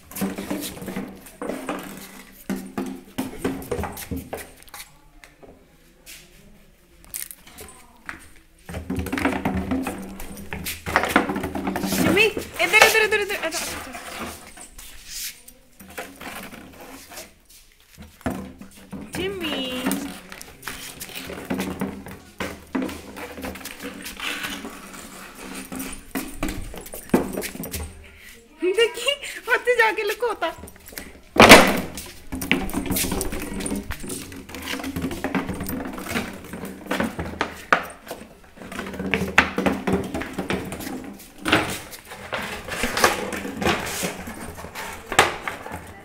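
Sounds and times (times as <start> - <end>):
plastic bottle crinkling and knocking: 0.0 - 4.9, 7.0 - 14.7, 15.8 - 28.0, 30.0 - 46.0
plastic bottle crinkling on floor: 7.0 - 15.0.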